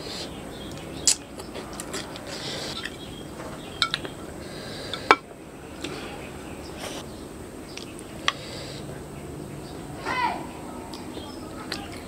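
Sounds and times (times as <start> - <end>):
tableware clinking: 3.8 - 4.2.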